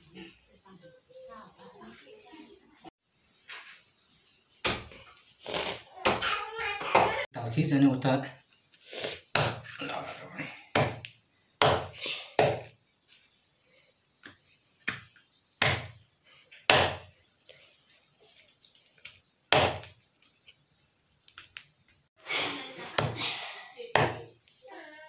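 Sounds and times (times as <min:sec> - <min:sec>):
knife chopping on wooden block: 0:16.7 - 0:17.1, 0:19.5 - 0:19.9.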